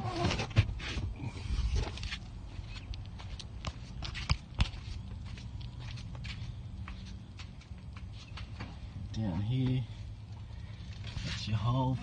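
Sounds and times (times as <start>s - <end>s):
handling knocks and scuffs: 0.1s - 8.9s
footsteps: 1.8s - 10.0s.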